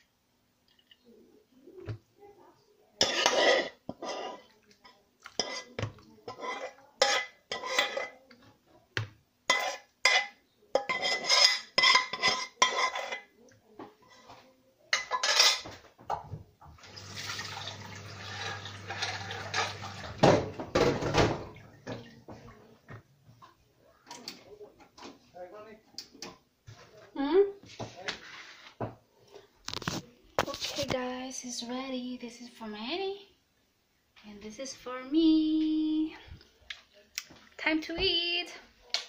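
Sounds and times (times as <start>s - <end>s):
dishes and cutlery clattering: 3.0s - 8.2s, 9.5s - 16.4s, 18.2s - 22.6s.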